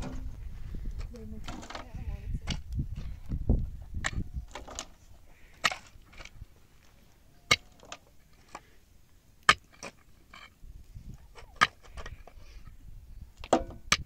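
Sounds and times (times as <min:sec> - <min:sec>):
shovel and pick digging stony soil: 0:03.9 - 0:12.8, 0:13.4 - 0:14.0.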